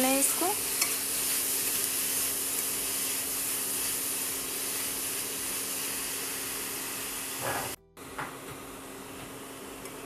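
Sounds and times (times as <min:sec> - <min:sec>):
carrot sizzling in ghee: 0:00.0 - 0:07.8.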